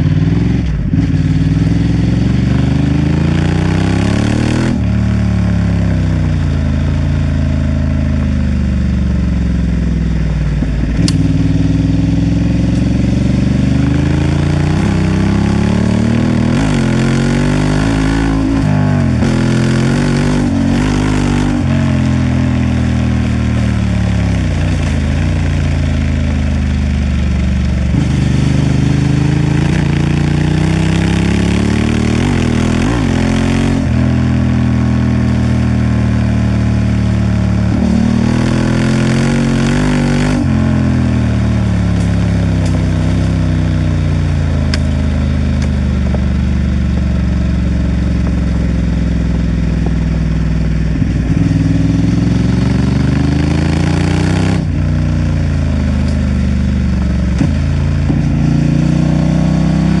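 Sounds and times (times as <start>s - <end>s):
motorcycle engine revving: 0.0s - 60.0s
sharp click: 11.0s - 11.2s.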